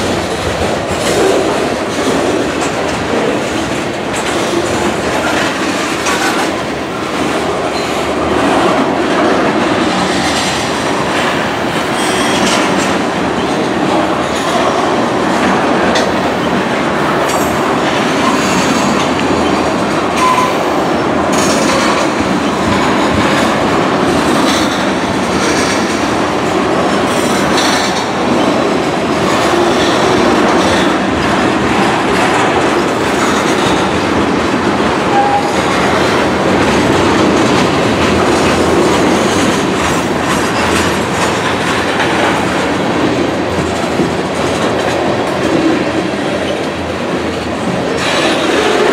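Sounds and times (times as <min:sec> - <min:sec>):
freight train wheels clattering: 0:00.0 - 0:48.9
train wheel squeal: 0:20.2 - 0:20.8.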